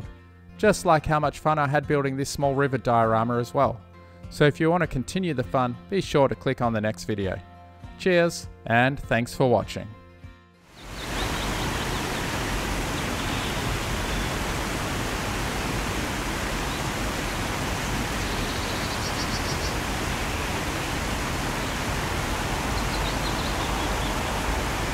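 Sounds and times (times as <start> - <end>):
waterfall rushing: 10.8 - 24.9
faint high chirps: 18.2 - 19.8.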